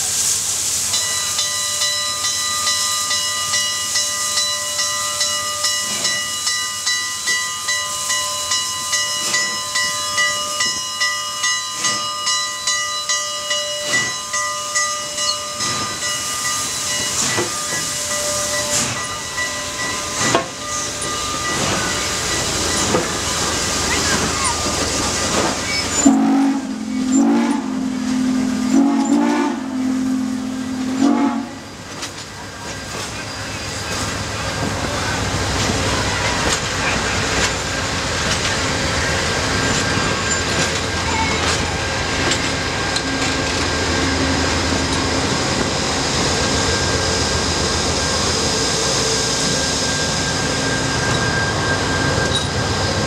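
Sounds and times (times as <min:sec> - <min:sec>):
steam hissing: 0:00.0 - 0:53.0
locomotive bell ringing: 0:00.9 - 0:53.0
steam exhaust beats: 0:13.8 - 0:32.1
wavering whistle-like tone: 0:17.3 - 0:31.8, 0:46.3 - 0:53.0.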